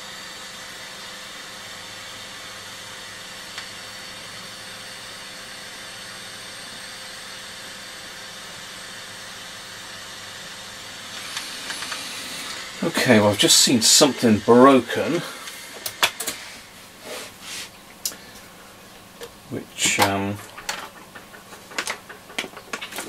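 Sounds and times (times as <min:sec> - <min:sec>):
steady hiss: 0:06.0 - 0:23.0.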